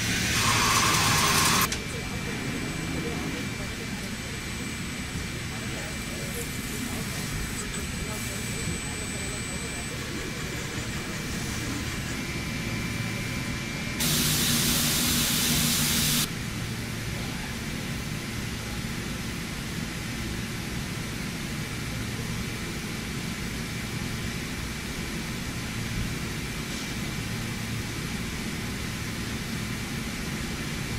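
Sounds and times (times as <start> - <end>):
machine hissing and humming: 0.0 - 30.9
loud rushing hiss: 14.0 - 16.3.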